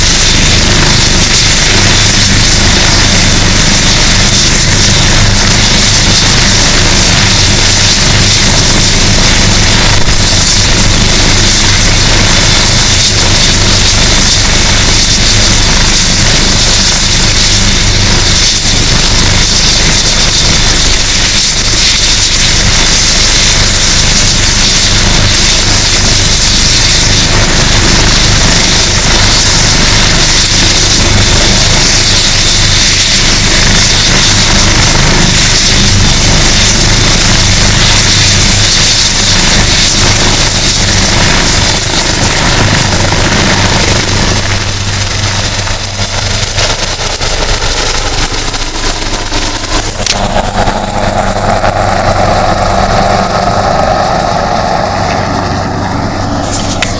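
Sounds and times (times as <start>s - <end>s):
helicopter rotor noise: 0.0s - 56.9s
helicopter turbine whine: 0.0s - 56.9s.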